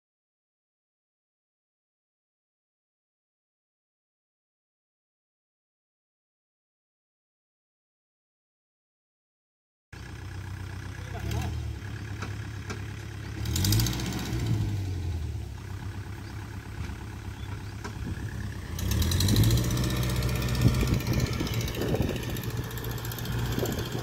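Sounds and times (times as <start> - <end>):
tractor diesel engine revving: 10.0 - 24.0.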